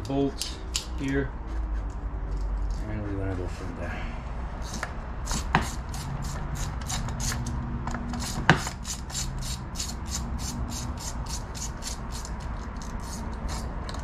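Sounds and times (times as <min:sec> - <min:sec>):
ratchet wrench clicking: 0:04.6 - 0:14.0.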